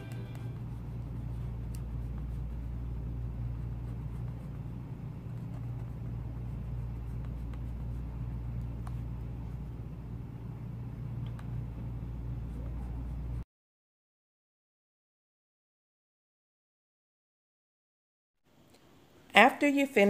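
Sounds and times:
low hum: 0:00.0 - 0:13.4.

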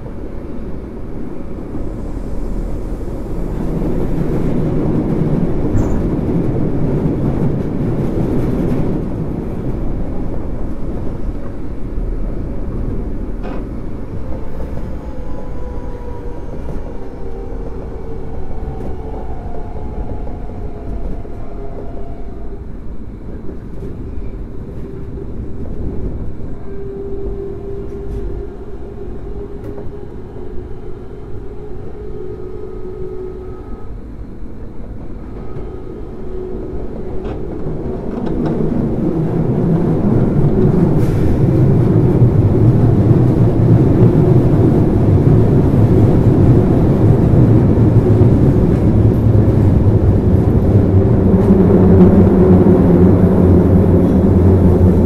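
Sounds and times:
wheels rumbling on track: 0:00.0 - 0:55.0.

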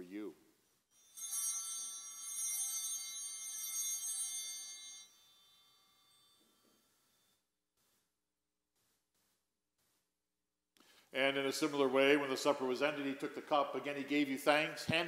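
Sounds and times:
altar bells ringing: 0:00.9 - 0:07.3.

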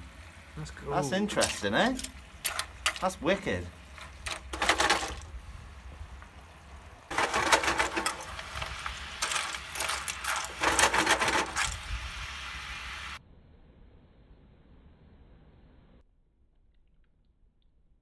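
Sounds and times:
shellfish sizzling in a frying pan: 0:00.0 - 0:13.2
shells clinking and scraping: 0:01.4 - 0:03.2, 0:03.9 - 0:05.3, 0:07.1 - 0:11.8.

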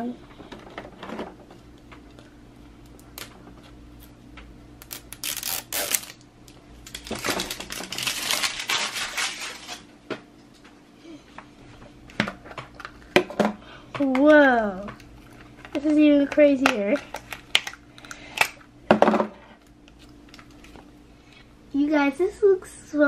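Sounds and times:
wrapping crinkling: 0:04.8 - 0:06.2, 0:06.8 - 0:09.9.

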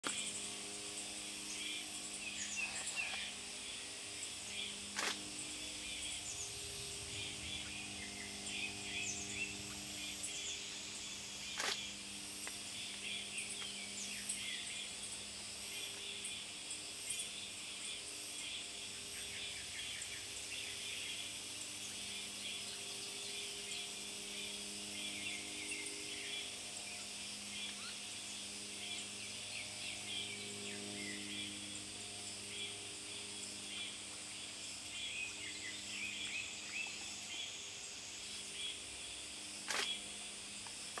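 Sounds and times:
high-pitched drone: 0:00.0 - 0:16.6
low steady hum: 0:00.0 - 0:41.0.

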